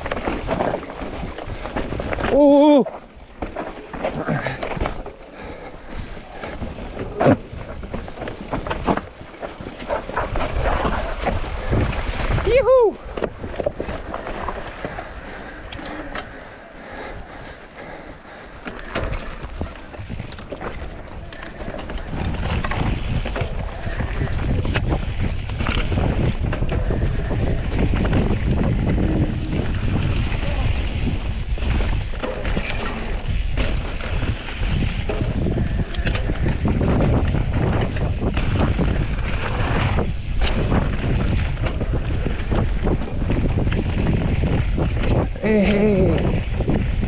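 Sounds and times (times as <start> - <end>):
bike rattles and knocks: 0.0 - 47.0
bike tyres on dirt and rock: 0.0 - 47.0
wind rumble on microphone: 4.2 - 47.0.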